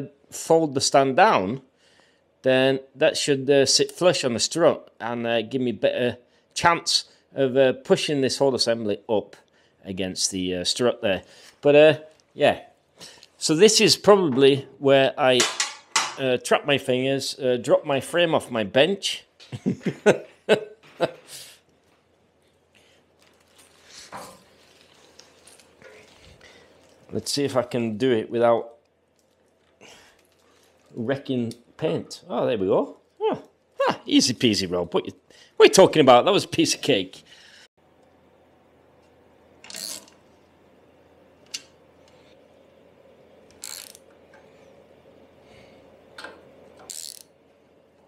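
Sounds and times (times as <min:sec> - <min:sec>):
socket ratchet clicking: 0:43.5 - 0:44.1, 0:46.2 - 0:47.3.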